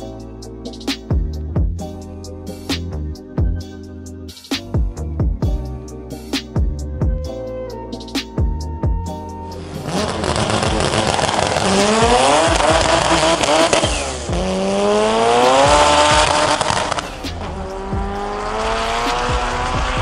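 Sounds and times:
car accelerating hard: 9.6 - 20.0.

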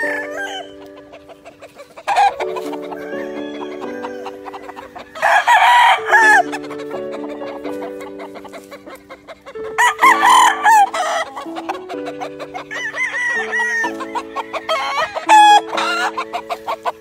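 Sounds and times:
rooster crowing: 0.0 - 1.0, 2.1 - 6.6, 9.8 - 11.5, 12.5 - 16.7
music with held chords: 0.0 - 17.0.

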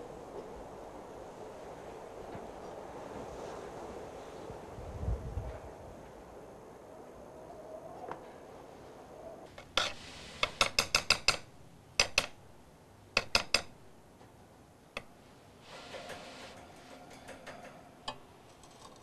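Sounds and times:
spatula scrape: 9.6 - 10.6.

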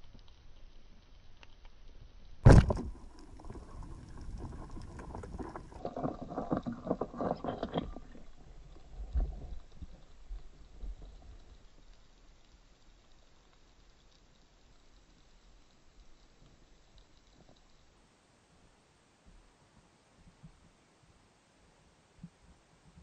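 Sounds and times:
underwater speargun shot: 2.5 - 2.9
fish thrashing clicking and knocking: 2.5 - 11.7.

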